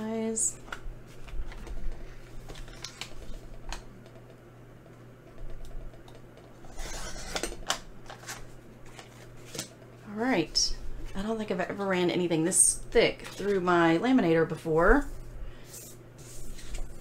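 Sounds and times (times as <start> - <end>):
paper trimmer blade scraping: 6.6 - 7.6.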